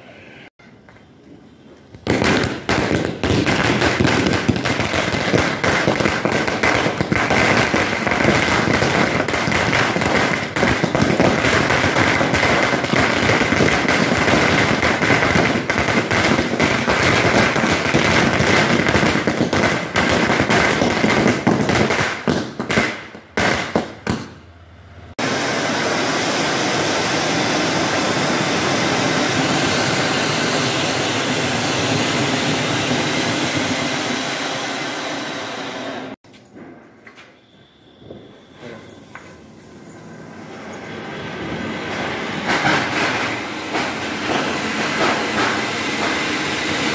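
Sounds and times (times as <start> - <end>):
firecrackers crackling: 0.8 - 24.4, 41.7 - 46.9
firework fountain hissing: 1.9 - 24.3, 25.2 - 36.2, 37.8 - 46.9
high whistle: 37.1 - 39.7.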